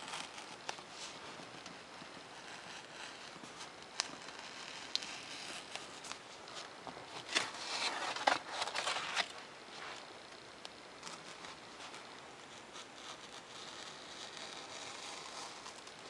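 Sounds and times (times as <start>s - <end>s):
hobby knife scraping paper: 0.0s - 6.2s, 7.1s - 10.0s, 11.0s - 16.0s
paper rustling: 0.0s - 10.1s.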